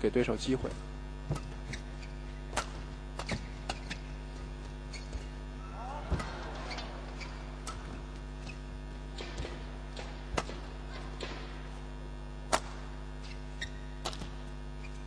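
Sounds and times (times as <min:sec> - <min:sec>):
electrical hum: 0:00.0 - 0:15.0
rackets hitting shuttlecock: 0:01.3 - 0:01.8, 0:02.5 - 0:04.1, 0:05.0 - 0:08.2, 0:09.1 - 0:15.0.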